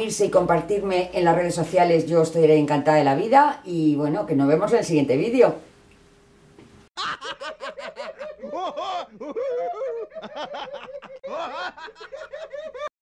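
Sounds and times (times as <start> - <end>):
laughter sound effect: 7.0 - 12.9.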